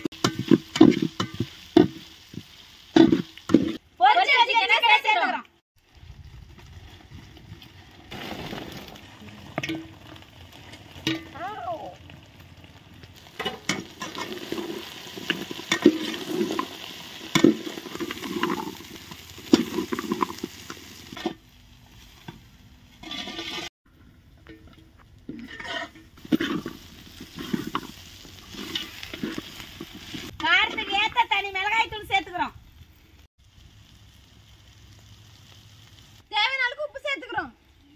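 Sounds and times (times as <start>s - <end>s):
spatula scraping pan: 0.0s - 2.4s, 13.4s - 21.4s, 22.0s - 23.7s, 25.3s - 31.2s
oil sizzling: 0.0s - 23.7s, 24.3s - 37.8s.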